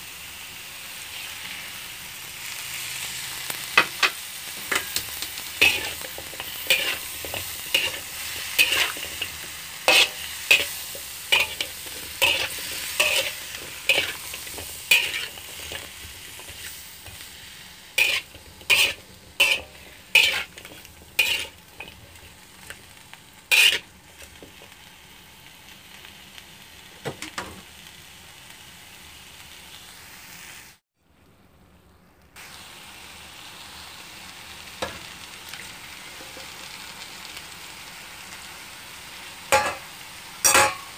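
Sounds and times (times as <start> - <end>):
food sizzling: 0.0 - 30.8, 32.4 - 40.9
metal spatula scraping a wok: 3.8 - 22.8, 23.5 - 24.7.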